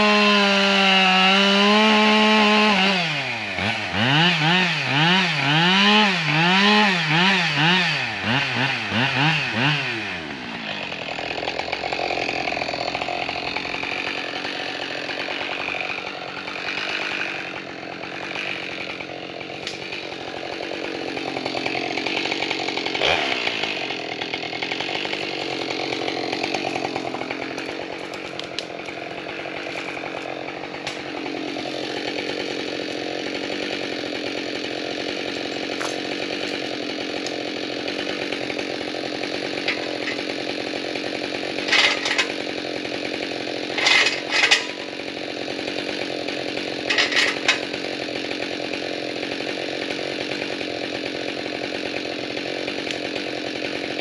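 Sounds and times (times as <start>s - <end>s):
chainsaw cutting log: 0.0s - 54.0s.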